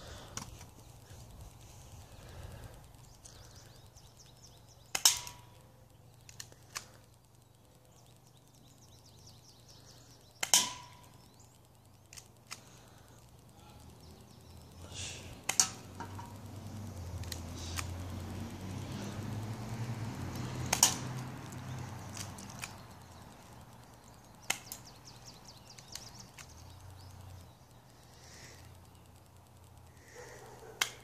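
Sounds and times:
faint ticks: 0.0 - 31.0
airsoft pistol shots: 10.4 - 11.0.

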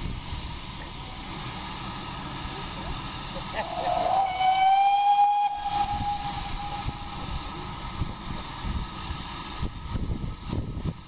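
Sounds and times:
steam locomotive whistle: 3.6 - 7.6.

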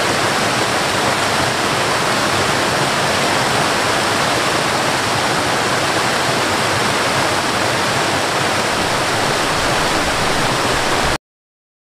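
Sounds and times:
waterfall and rapids rushing: 0.0 - 11.2.

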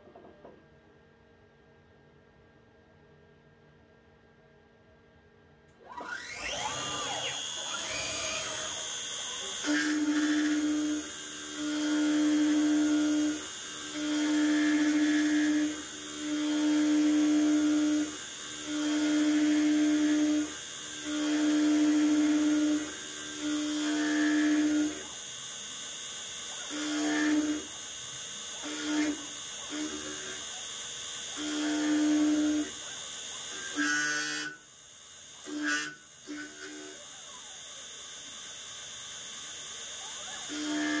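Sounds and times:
lathe cutting metal: 6.0 - 41.0.

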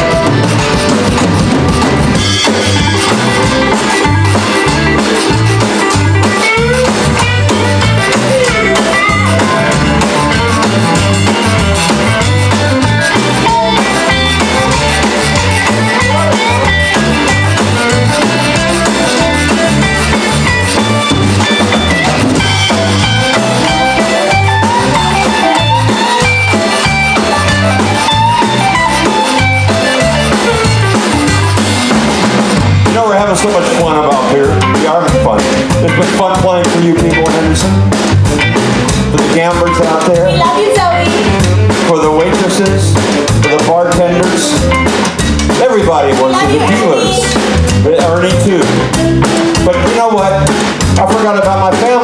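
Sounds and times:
accordion: 0.0 - 52.0
drum kit beat: 0.0 - 52.0
electric bass: 0.0 - 52.0
electric guitar: 0.0 - 52.0.

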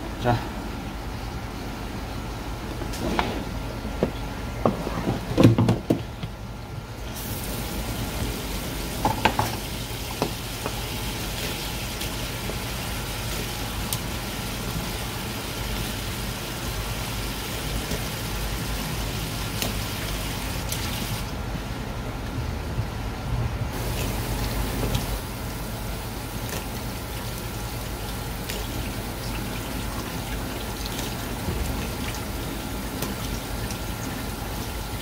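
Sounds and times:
running water hissing: 23.8 - 35.0.

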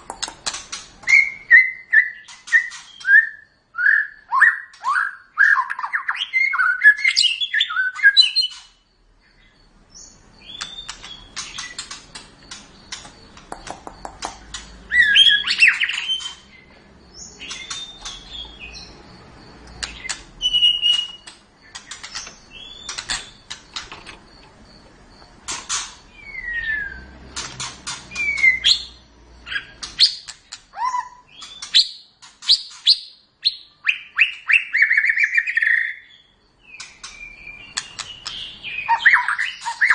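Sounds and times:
rapid sharp bird clicks: 0.0 - 1.2, 10.5 - 14.8, 19.6 - 24.5, 27.3 - 28.6, 29.8 - 30.7, 36.7 - 38.5
bird singing whistled phrases: 1.1 - 8.6, 14.9 - 16.4, 19.9 - 21.3, 26.2 - 27.1, 28.1 - 39.9.

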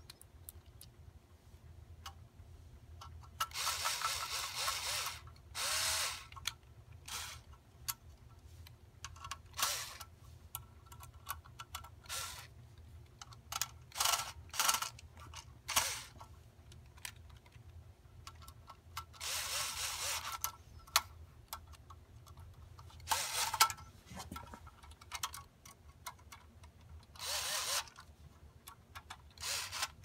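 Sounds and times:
power screwdriver whirring: 3.5 - 6.3, 7.1 - 7.5, 9.6 - 10.0, 12.1 - 12.5, 15.7 - 16.2, 19.2 - 20.4, 23.1 - 23.6, 27.2 - 28.0, 29.4 - 30.0.

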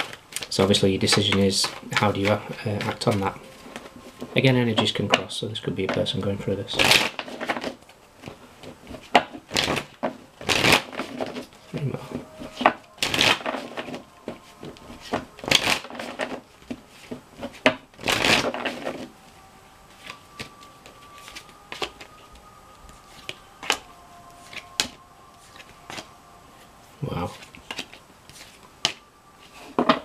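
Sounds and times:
cards being shuffled: 6.8 - 19.1, 19.9 - 23.8, 24.4 - 30.0.

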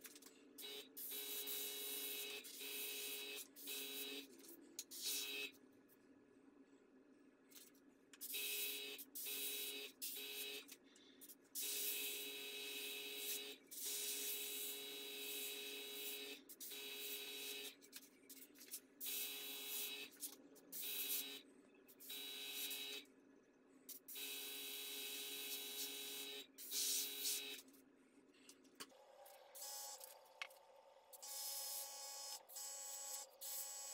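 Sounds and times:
airbrush hissing bursts: 26.6 - 27.4.

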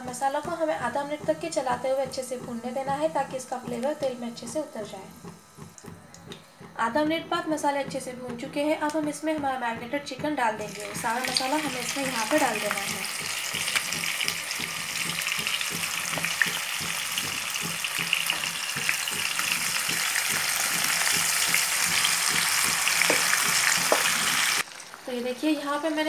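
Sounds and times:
chicken sizzling in hot oil: 10.6 - 26.0.

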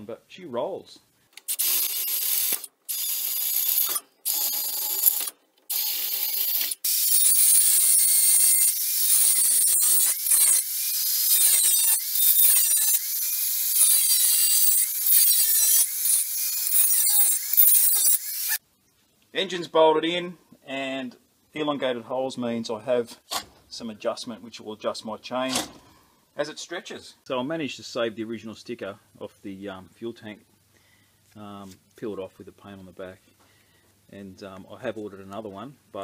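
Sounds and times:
angle grinder cutting steel chain: 1.4 - 18.6.

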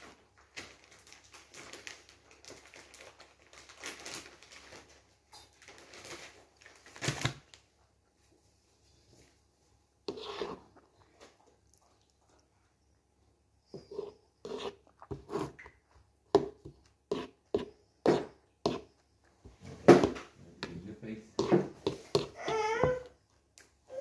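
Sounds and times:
child vocalizing: 22.2 - 23.1.

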